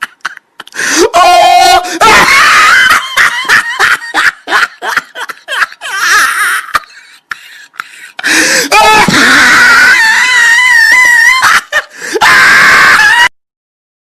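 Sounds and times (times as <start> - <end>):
person screaming: 0.8 - 3.2, 8.3 - 13.3.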